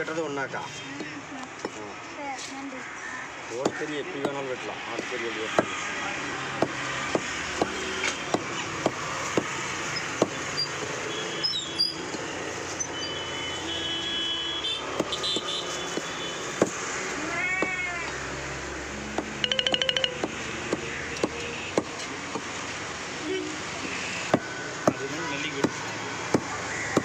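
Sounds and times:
cleaver chopping meat on wood: 3.6 - 5.8, 6.5 - 10.5, 20.1 - 22.5, 25.6 - 27.0
cat meowing: 17.2 - 18.1.

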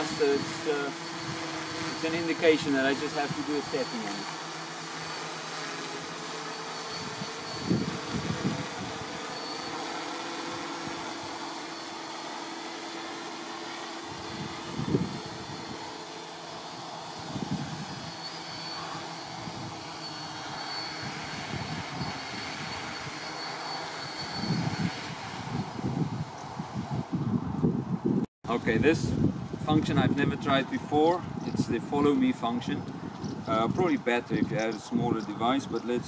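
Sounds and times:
drone propellers whirring: 0.0 - 28.0
wind buffeting microphone: 6.9 - 9.3, 14.0 - 16.0, 17.1 - 18.2, 24.2 - 36.0.

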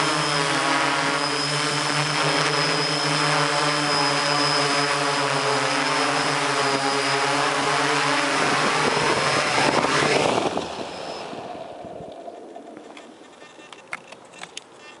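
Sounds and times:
drone motors humming: 0.0 - 14.9
small clicks: 12.1 - 15.0.

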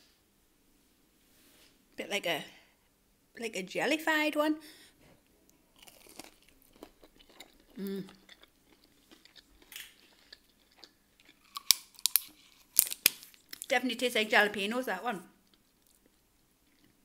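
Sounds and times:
person chewing with soft crunching: 5.1 - 13.8, 15.3 - 17.0
person humming mm: 7.8 - 8.2.

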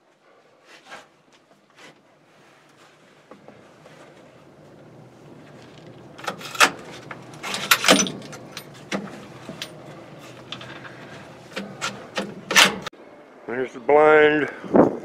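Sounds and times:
gear clicking and clinking: 5.4 - 12.9.

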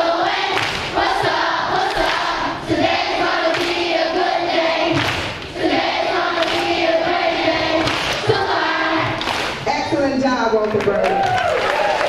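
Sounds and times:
young voices singing in unison: 0.0 - 9.6.

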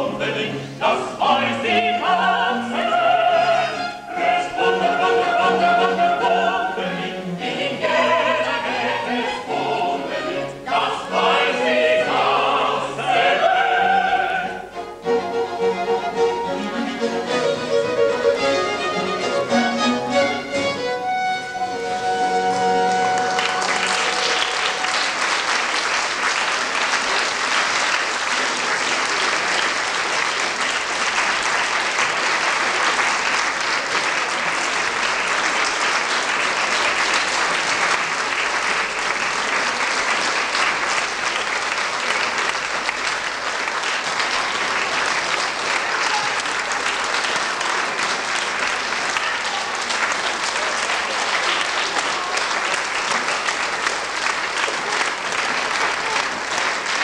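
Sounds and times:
baroque ensemble held notes: 0.0 - 57.0
audience applause: 22.4 - 57.0.

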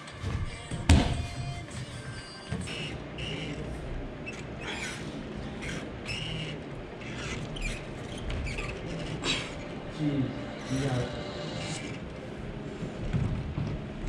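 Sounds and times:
steady background hum: 0.0 - 14.0
gymnastic rings squeaking: 1.3 - 12.2.

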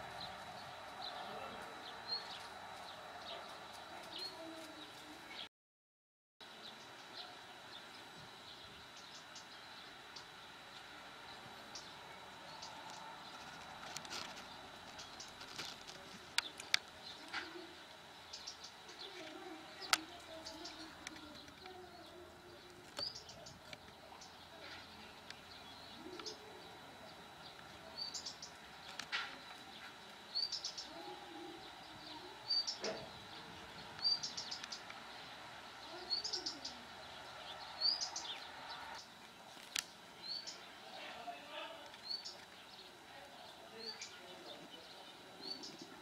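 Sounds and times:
faint low calls: 0.0 - 5.5, 6.5 - 46.0
bird chirping: 11.2 - 46.0.

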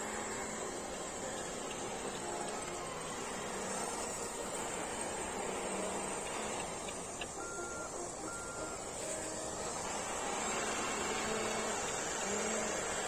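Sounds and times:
small electric motors whining: 0.0 - 13.0.

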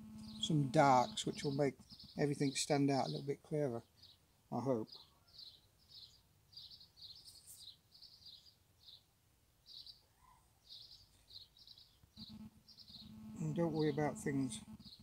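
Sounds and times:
faint high bird chirps: 3.9 - 15.0.

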